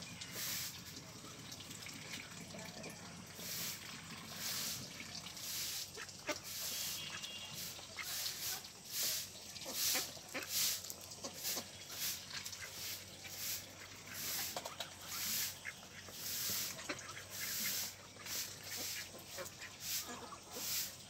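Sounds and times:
ducks quacking: 5.4 - 21.0.

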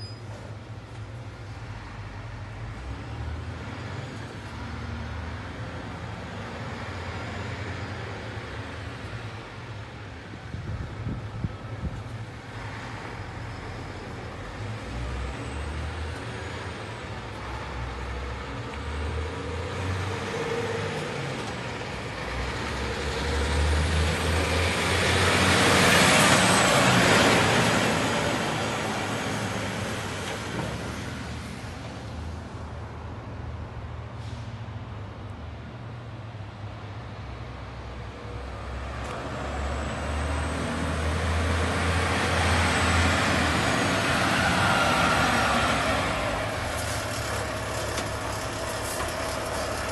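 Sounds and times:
diesel truck engine rumble: 37.8 - 49.9.

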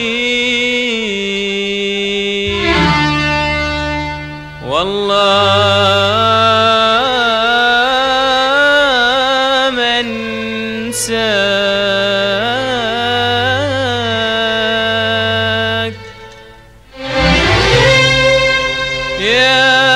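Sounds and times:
man singing melismatic notes: 0.0 - 19.9
low drone: 16.0 - 19.9.

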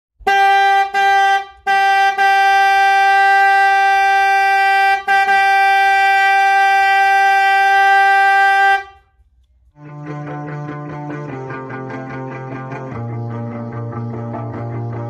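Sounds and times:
car horn honking: 0.2 - 9.2.

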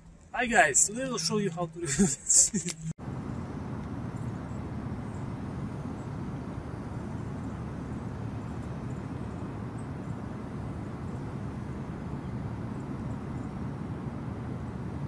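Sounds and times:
car engine idling: 3.0 - 15.0.

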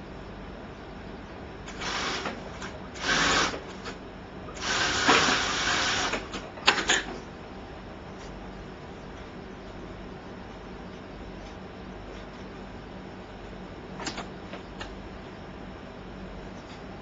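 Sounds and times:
steady low hum: 0.0 - 17.0
sewing machine stitching: 3.0 - 3.6, 4.6 - 6.4.

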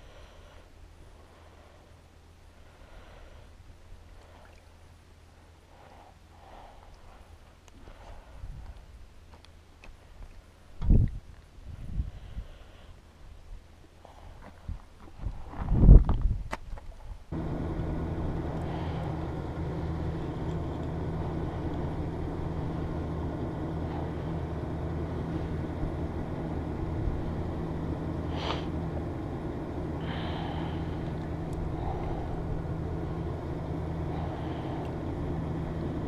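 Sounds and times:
vehicle engine idling: 17.3 - 36.0.

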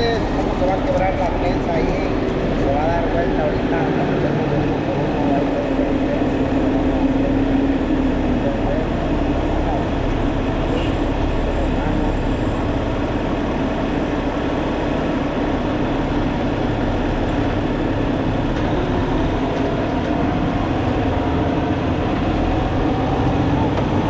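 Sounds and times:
truck engine: 0.0 - 24.0.

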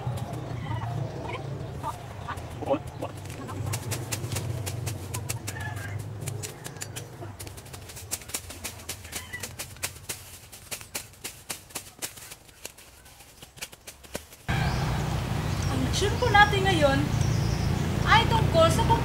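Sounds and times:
knife chopping through grass: 3.0 - 14.5
low rumble: 14.5 - 18.5.

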